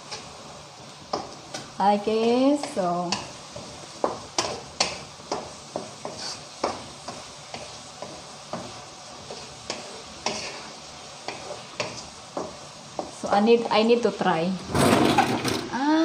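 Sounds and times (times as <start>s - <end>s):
spatula scraping a wok: 0.0s - 13.7s
meat sizzling: 0.0s - 14.7s.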